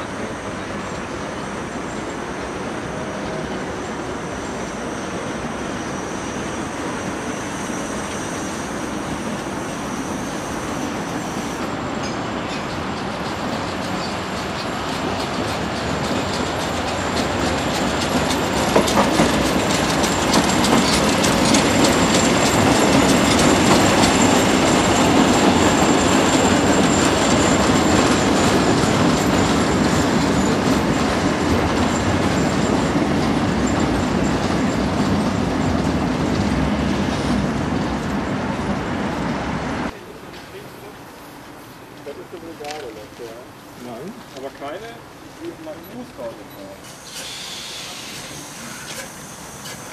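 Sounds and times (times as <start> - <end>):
steam train passing: 0.0 - 49.9
wheels clicking at rail joints: 0.1 - 38.8, 40.2 - 49.9
high wheel squeal: 0.2 - 36.0, 45.9 - 49.9.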